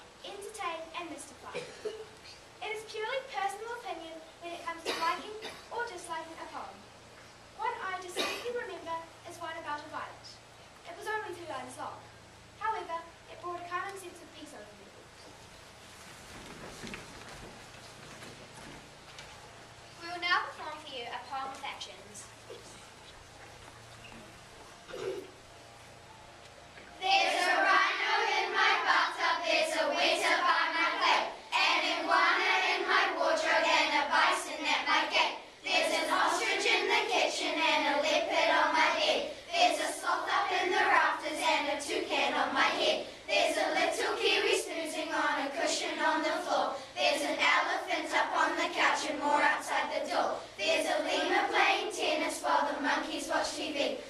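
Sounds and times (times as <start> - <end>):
children singing in unison: 27.0 - 54.0.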